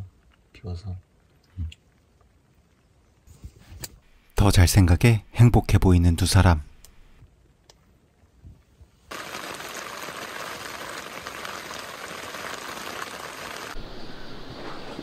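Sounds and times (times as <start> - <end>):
steady rain falling: 0.0 - 4.2, 7.2 - 14.0.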